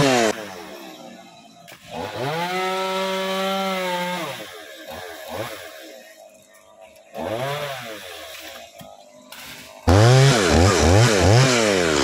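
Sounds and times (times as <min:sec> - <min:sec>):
chainsaw revving and idling: 0:00.0 - 0:00.8, 0:01.8 - 0:06.0, 0:07.1 - 0:08.4, 0:09.8 - 0:12.0.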